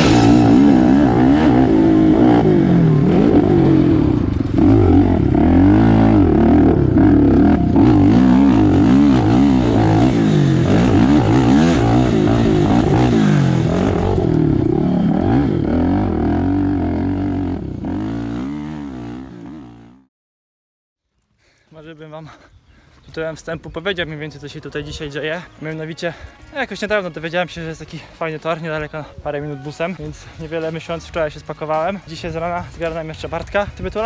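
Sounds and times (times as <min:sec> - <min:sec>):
motorcycle engine revving: 0:00.0 - 0:20.1.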